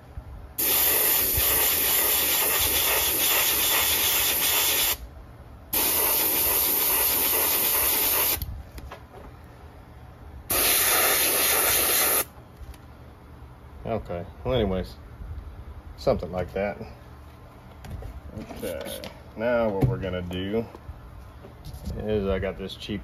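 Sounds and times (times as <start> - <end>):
airbrush hissing: 0.6 - 5.0, 5.7 - 8.4, 10.5 - 12.3.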